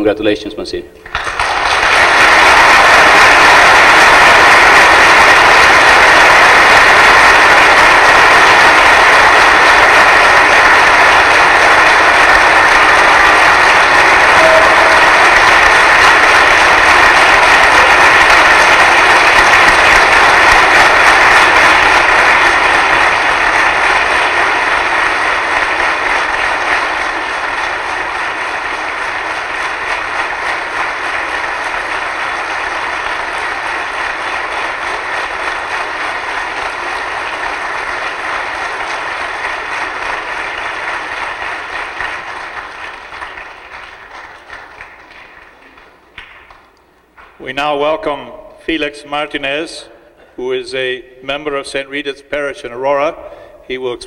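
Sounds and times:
congregation applauding: 0:01.0 - 0:50.0.

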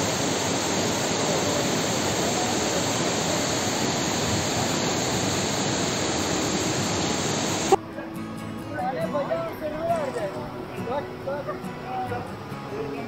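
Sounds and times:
water rushing over rocks: 0:00.0 - 0:07.8.

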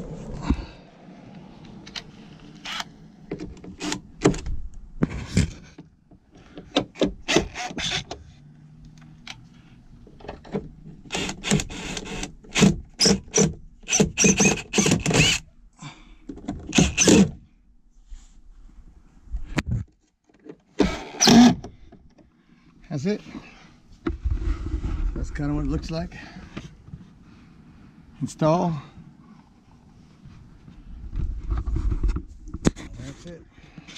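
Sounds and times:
drill whirring: 0:07.2 - 0:08.1, 0:11.1 - 0:15.5, 0:16.7 - 0:17.3, 0:20.8 - 0:21.6.

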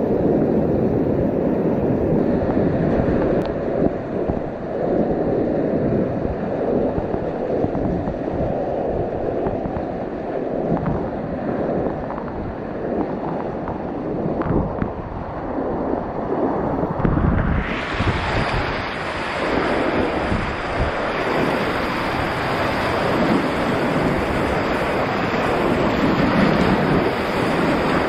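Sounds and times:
whitewater rapids rushing: 0:17.4 - 0:28.0.

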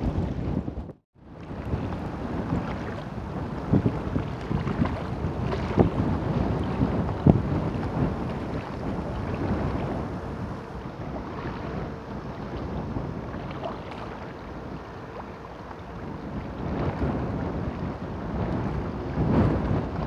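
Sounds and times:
wind buffeting microphone: 0:00.0 - 0:20.0
waves washing against rocks: 0:01.4 - 0:15.3.

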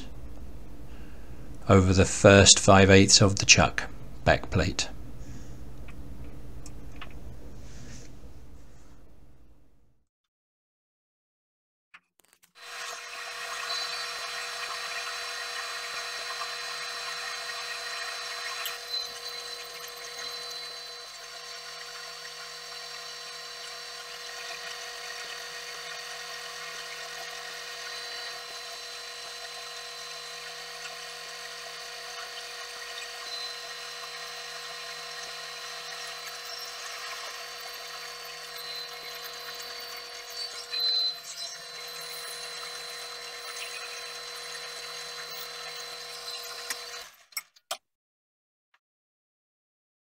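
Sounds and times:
metal lathe whining: 0:12.6 - 0:47.2.

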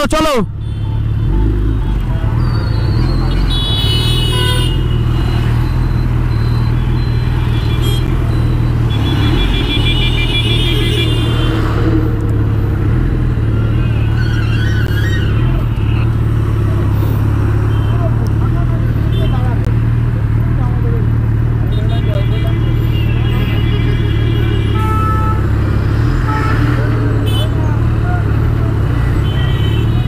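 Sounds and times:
street traffic idling: 0:00.0 - 0:30.0
vehicle horn: 0:03.4 - 0:05.2, 0:07.4 - 0:08.2, 0:08.9 - 0:11.9, 0:17.7 - 0:18.2, 0:21.7 - 0:25.6, 0:26.2 - 0:27.6, 0:29.1 - 0:30.0.

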